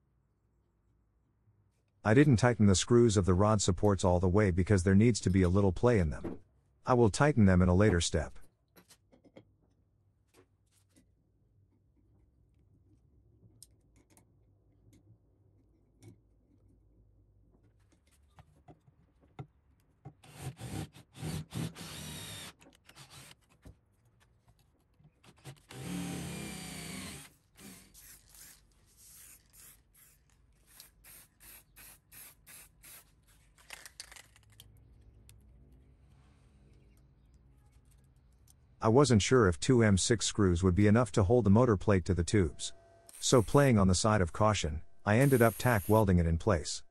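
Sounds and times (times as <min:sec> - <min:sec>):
paint spray bursts: 0:45.2 - 0:46.0.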